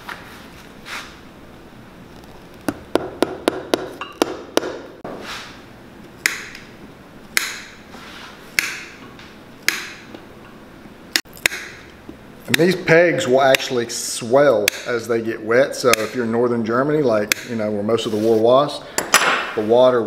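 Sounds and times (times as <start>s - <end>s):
hammer tapping pegs into sole: 2.7s - 4.9s, 7.4s - 7.8s, 8.6s - 9.0s, 9.7s - 10.1s, 14.6s - 14.9s, 15.9s - 16.2s, 17.3s - 17.5s.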